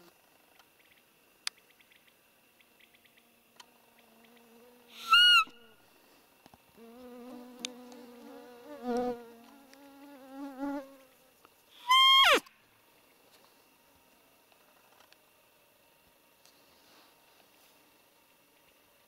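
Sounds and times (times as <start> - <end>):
fly buzzing: 3.1 - 5.7, 6.7 - 12.2.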